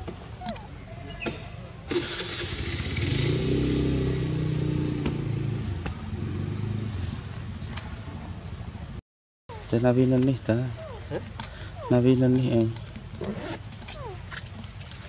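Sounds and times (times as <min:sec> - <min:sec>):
vehicle engine passing by: 0:02.0 - 0:08.4.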